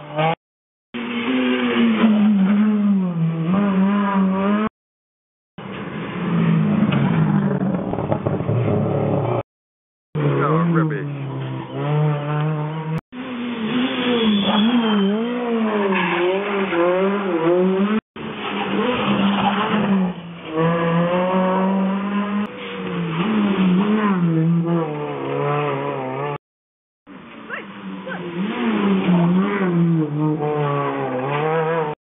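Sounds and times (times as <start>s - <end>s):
rally cars passing at speed: 5.6s - 9.4s, 10.2s - 26.4s, 27.2s - 32.0s.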